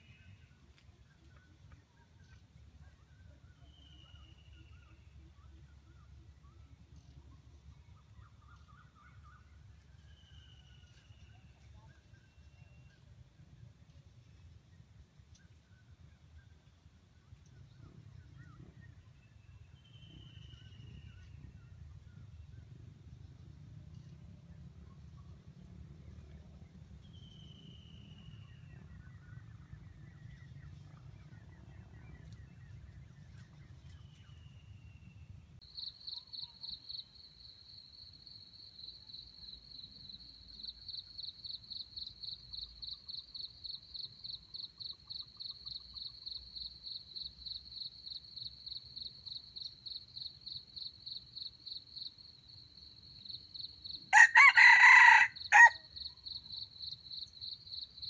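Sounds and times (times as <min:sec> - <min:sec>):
rooster crowing: 0:54.1 - 0:55.9.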